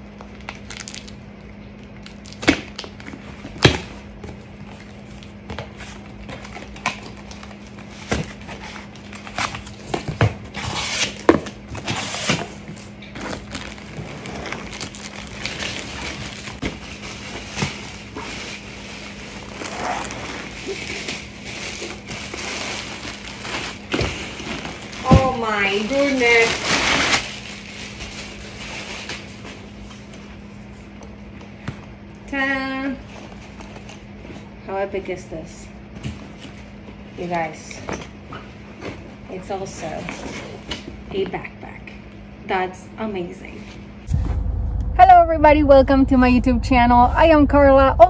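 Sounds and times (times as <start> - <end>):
plastic wrap crinkling: 0.2 - 1.2, 12.6 - 29.7
faint steady hum: 41.1 - 48.0.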